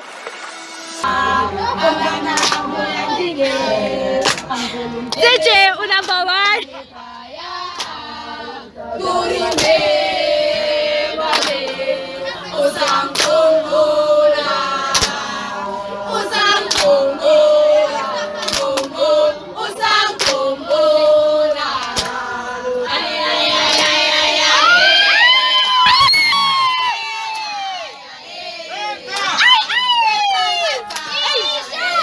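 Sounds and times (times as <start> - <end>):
children singing together: 1.0 - 5.1, 6.6 - 25.1
hand claps: 2.3 - 2.7, 4.2 - 5.2, 9.5 - 9.8, 11.3 - 11.8, 12.8 - 13.4, 14.9 - 15.2, 16.6 - 17.0, 18.4 - 18.9, 20.2 - 20.5, 21.8 - 22.2, 30.8 - 31.1.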